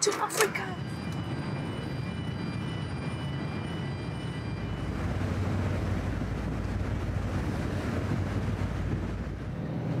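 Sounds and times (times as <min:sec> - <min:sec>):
ship engine rumble: 0:00.0 - 0:10.0
wind buffeting microphone: 0:00.6 - 0:10.0.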